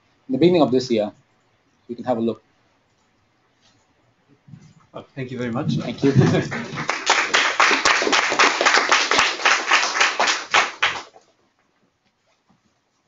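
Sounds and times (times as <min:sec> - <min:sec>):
audience applauding: 0:05.9 - 0:11.2.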